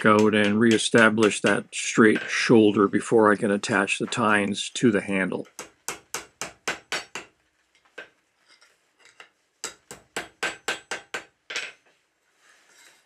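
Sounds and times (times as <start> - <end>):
hammer striking steel on anvil: 5.6 - 7.3, 9.6 - 11.3.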